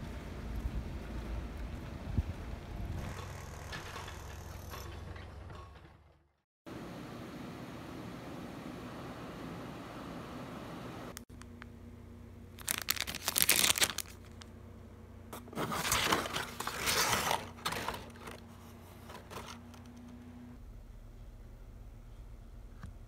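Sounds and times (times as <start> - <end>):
air-conditioner blowing: 6.7 - 22.8
packing paper crinkling: 12.5 - 14.5, 15.6 - 18.4.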